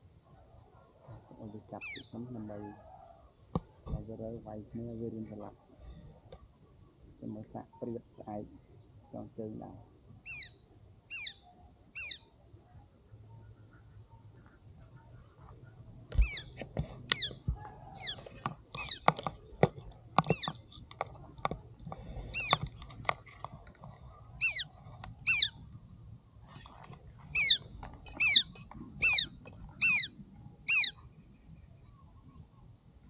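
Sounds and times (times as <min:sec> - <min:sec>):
small bird shrill calls: 0:01.8 - 0:02.1, 0:10.2 - 0:12.3, 0:16.2 - 0:19.1, 0:20.2 - 0:20.6, 0:22.3 - 0:22.7, 0:24.4 - 0:25.6, 0:27.3 - 0:31.0.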